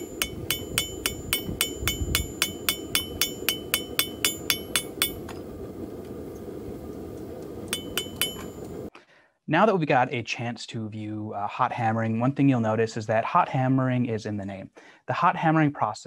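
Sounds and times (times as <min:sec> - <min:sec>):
hammer striking metal on anvil: 0:00.0 - 0:05.5, 0:07.7 - 0:08.8
low rushing noise: 0:00.0 - 0:08.9.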